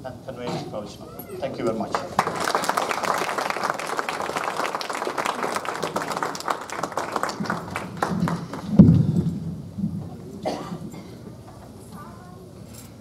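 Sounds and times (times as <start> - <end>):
audience applauding: 1.4 - 9.1
microphone handling thump: 8.7 - 10.2.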